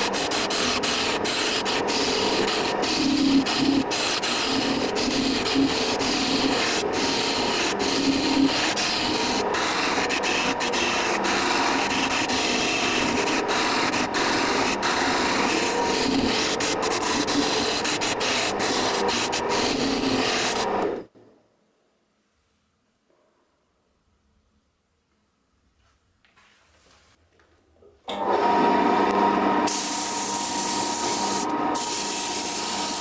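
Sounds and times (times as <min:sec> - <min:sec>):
lathe humming: 0:00.0 - 0:21.0, 0:28.1 - 0:33.0
chisel scraping spinning wood: 0:00.0 - 0:21.1, 0:29.7 - 0:33.0.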